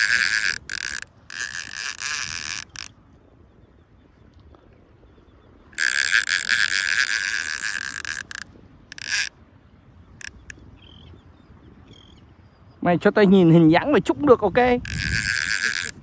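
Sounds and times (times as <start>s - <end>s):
fishing reel drag buzzing: 0.0s - 3.0s, 5.7s - 9.3s, 10.2s - 10.6s, 14.8s - 16.0s.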